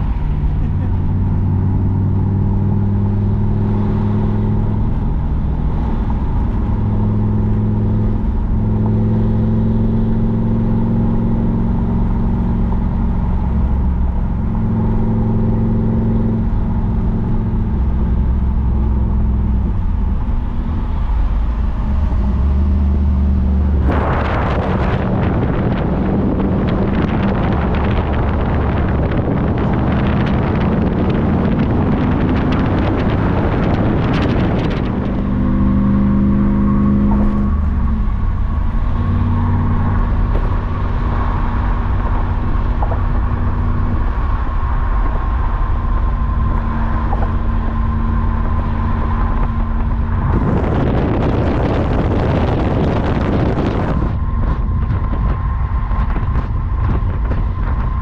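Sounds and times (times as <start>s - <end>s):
car engine running: 0.0s - 58.0s
loud wind rush: 19.3s - 58.0s.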